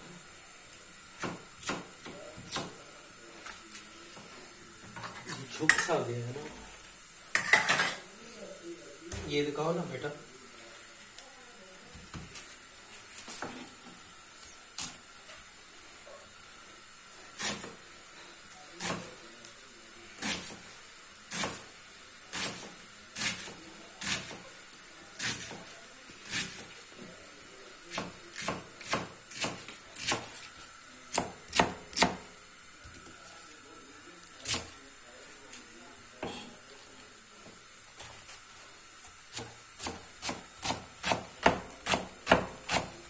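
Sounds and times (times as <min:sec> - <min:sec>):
knife chopping cabbage on board: 0:01.2 - 0:02.8, 0:17.4 - 0:17.8, 0:18.8 - 0:19.1, 0:20.2 - 0:20.6, 0:21.3 - 0:21.6, 0:22.3 - 0:24.4, 0:25.2 - 0:26.7, 0:27.9 - 0:30.4, 0:31.1 - 0:32.3, 0:39.3 - 0:43.0.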